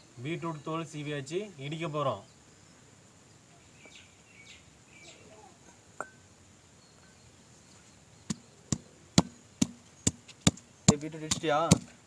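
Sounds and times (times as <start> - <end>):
stone pestle striking mortar: 8.3 - 12.0.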